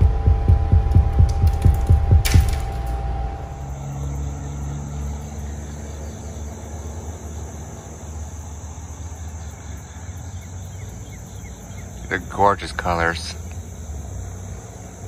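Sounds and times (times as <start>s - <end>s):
low steady rumble: 0.0s - 6.2s
crickets droning: 0.0s - 15.0s.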